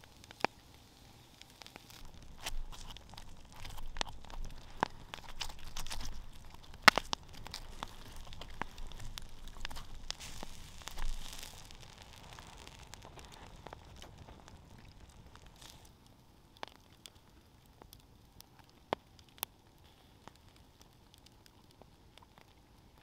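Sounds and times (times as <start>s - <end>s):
campfire crackling and popping: 0.0s - 23.0s.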